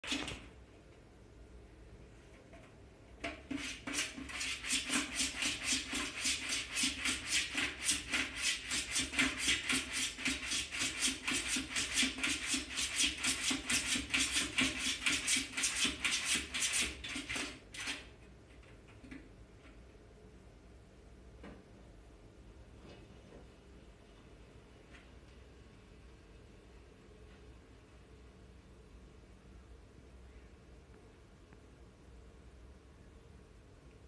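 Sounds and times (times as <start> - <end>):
kitten paw scratching plastic: 3.2 - 18.1.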